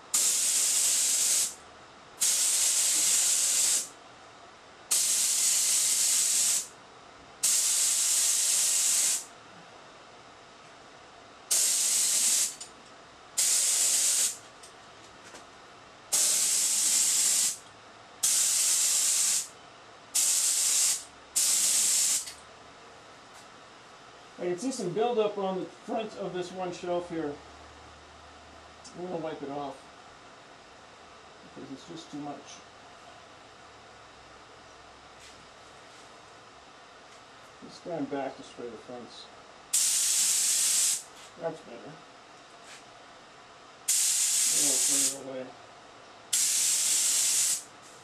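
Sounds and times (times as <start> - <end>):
spray gun air hiss bursts: 0.0 - 1.6, 2.2 - 3.9, 4.9 - 6.7, 7.4 - 9.3, 11.5 - 12.6, 13.4 - 14.4, 16.1 - 17.6, 18.2 - 19.5, 20.2 - 22.3, 39.7 - 41.1, 43.9 - 45.2, 46.3 - 47.7.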